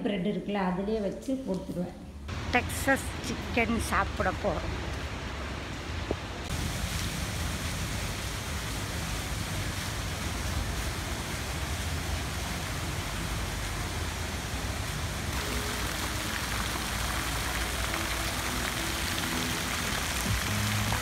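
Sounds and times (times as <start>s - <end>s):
faint background music: 0.0s - 4.7s, 14.8s - 21.0s
fountain jets splashing into pool: 6.4s - 21.0s.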